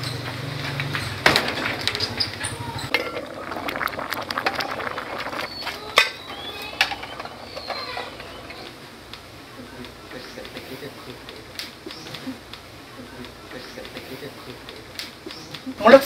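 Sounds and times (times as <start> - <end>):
small hard objects clinking: 1.0 - 8.4.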